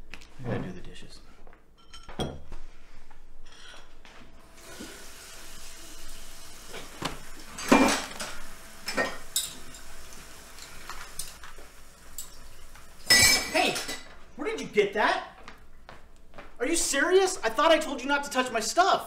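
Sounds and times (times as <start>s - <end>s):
dishes and cutlery clattering: 1.8s - 2.5s, 12.1s - 14.1s
running tap water: 4.4s - 14.1s.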